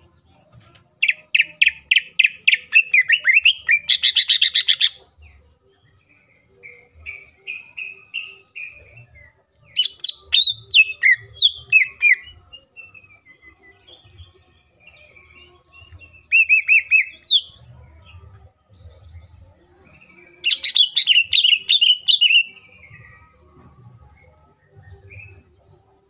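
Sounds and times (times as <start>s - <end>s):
bird singing varied song: 0.0s - 26.0s.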